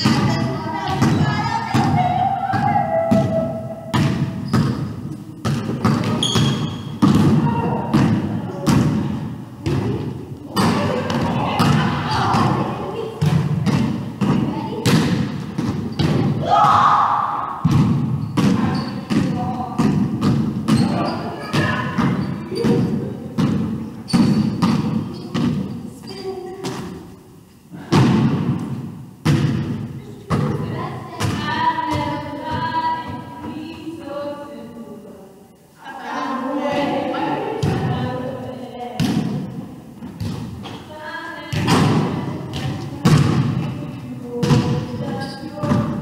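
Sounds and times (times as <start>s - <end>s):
basketball bouncing on wooden floor: 0.0s - 12.6s, 13.2s - 16.4s, 17.6s - 25.7s, 27.9s - 33.7s, 41.5s - 43.6s, 44.4s - 46.0s
high squeak: 6.2s - 6.9s.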